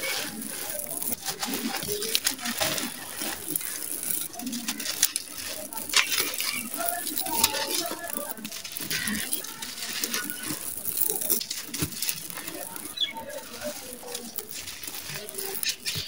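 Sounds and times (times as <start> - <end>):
gritty lumps crunching in hands: 0.0 - 16.0.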